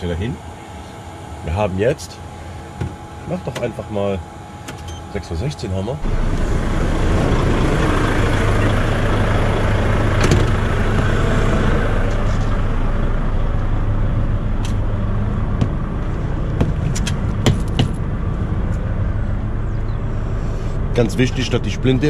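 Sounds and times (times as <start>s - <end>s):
truck diesel engine idling: 5.7s - 22.0s.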